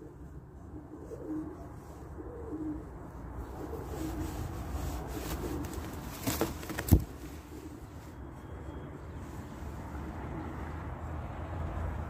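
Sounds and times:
pigeon cooing: 0.0 - 8.0.

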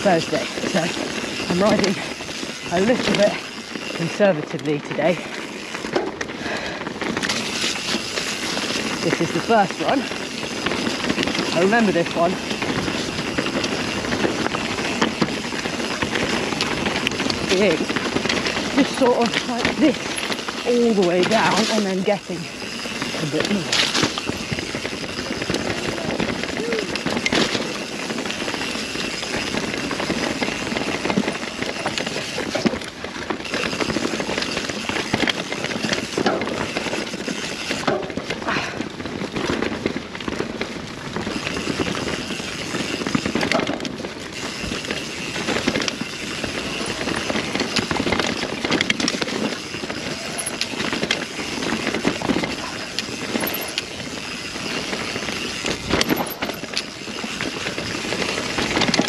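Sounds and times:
bike rattling: 0.0 - 59.0
bike tyres rolling on dirt: 0.0 - 59.0.

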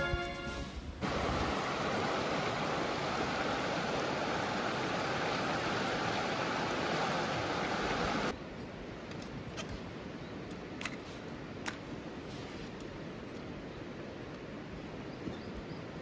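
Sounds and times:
background music: 0.0 - 0.8
river rushing over rocks: 1.0 - 8.4.

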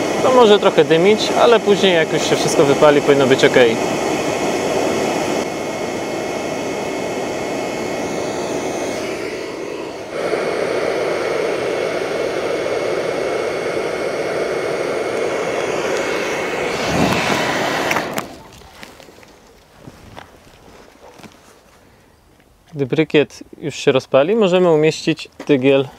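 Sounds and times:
air rushing through pipe: 0.0 - 18.8
hair dryer motor whine: 0.0 - 19.0.

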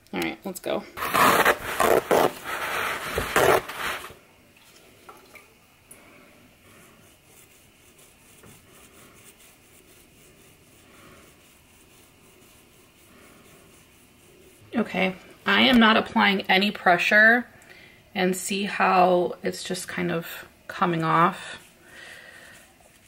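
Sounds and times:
paper towel rubbing cactus: 1.0 - 4.2, 6.6 - 16.3, 21.2 - 23.0
rustling and scraping of handling: 1.0 - 4.2, 21.0 - 23.0.

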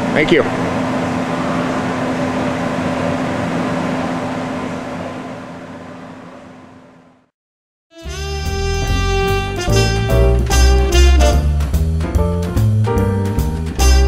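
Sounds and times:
shop machinery hum: 0.0 - 7.3.

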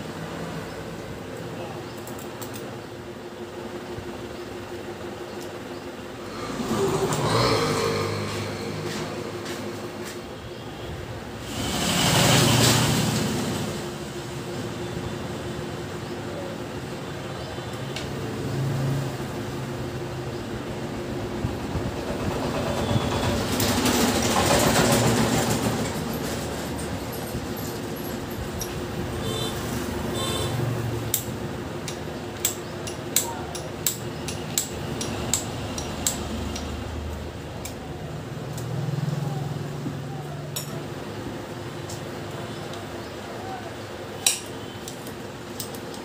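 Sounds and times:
background traffic: 0.0 - 46.0
vehicle passing: 6.2 - 10.4
tools clinking on metal engine: 26.3 - 29.4, 31.1 - 36.8, 40.5 - 41.0, 44.2 - 46.0.

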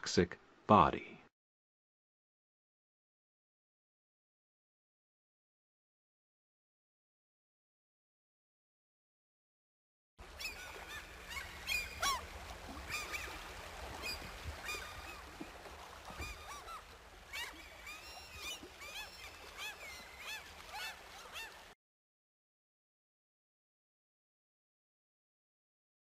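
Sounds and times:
waterfowl honking: 10.3 - 21.7.

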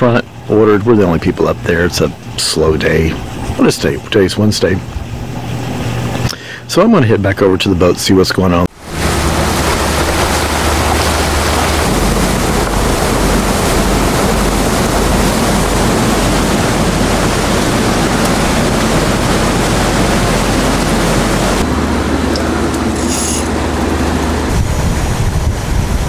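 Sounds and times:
boat engine drone: 0.0 - 26.0
water rush and wake spray: 0.0 - 26.0
wind on microphone: 8.8 - 26.0.

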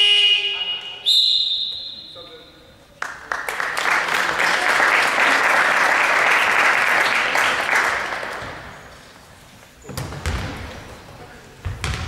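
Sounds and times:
crowd clapping: 3.0 - 8.7
basketball bouncing on court: 9.8 - 11.0, 11.6 - 12.0.

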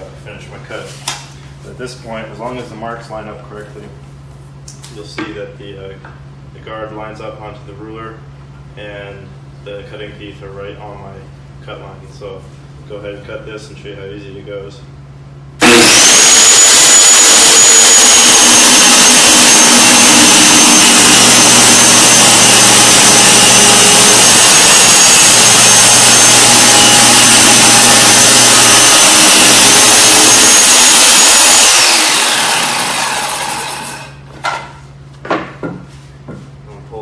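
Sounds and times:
circular saw cutting plywood: 15.6 - 34.2
saw blade winding down: 15.6 - 34.2.

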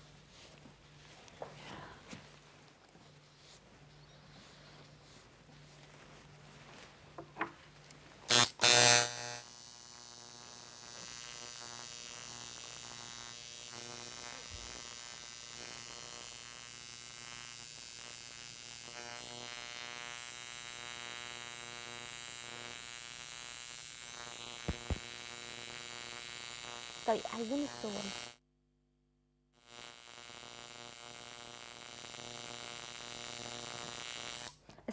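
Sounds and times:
tattoo machine buzzing: 8.3 - 28.4, 29.6 - 34.6.

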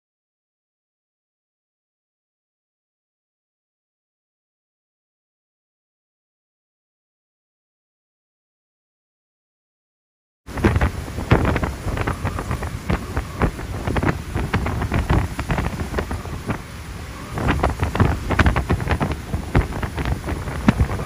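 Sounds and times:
wind gusting on microphone: 10.5 - 21.0.

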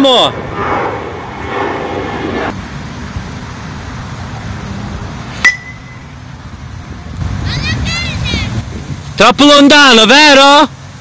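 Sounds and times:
metal bat hitting ball: 5.4 - 6.0.

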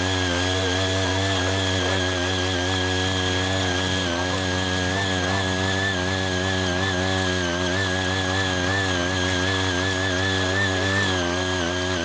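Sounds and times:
tiller engine running: 0.0 - 12.0.

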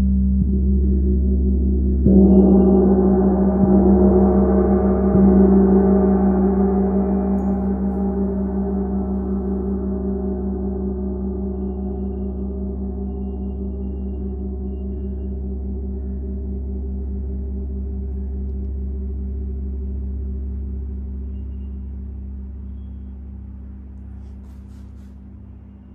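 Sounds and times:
gong struck with a mallet: 2.0 - 9.7.

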